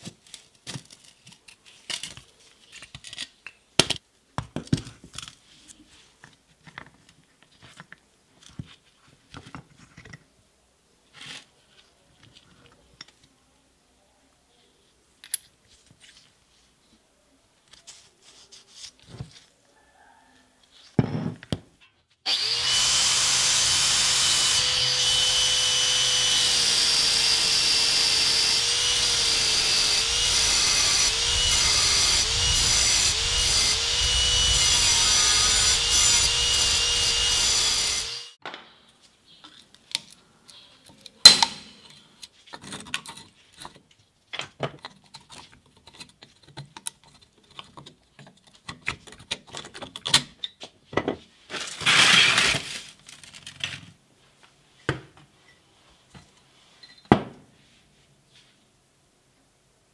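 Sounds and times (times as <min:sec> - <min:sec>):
angle grinder grinding steel: 0:22.3 - 0:38.4.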